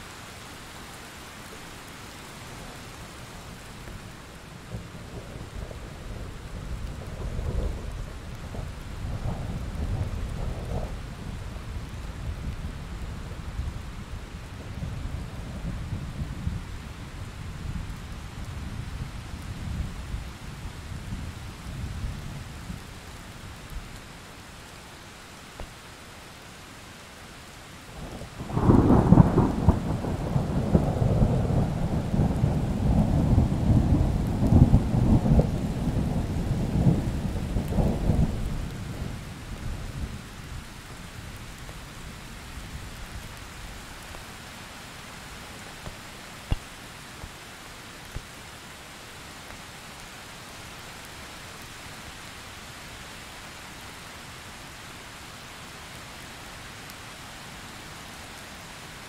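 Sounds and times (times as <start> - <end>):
steady rain: 0.0 - 59.0
thunder rumbling: 28.1 - 40.5.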